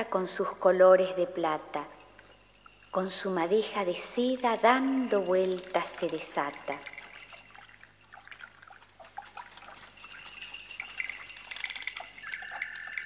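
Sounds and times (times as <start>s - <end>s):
water dripping: 1.4s - 13.0s
thin high steady tone: 1.9s - 8.7s, 9.4s - 13.0s.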